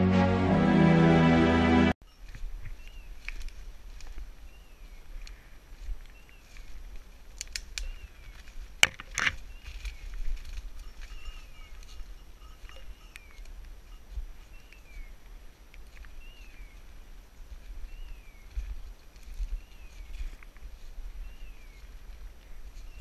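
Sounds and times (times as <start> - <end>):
footsteps through dry leaves: 2.1 - 23.0
twig snapping: 3.2 - 4.2, 7.2 - 9.8.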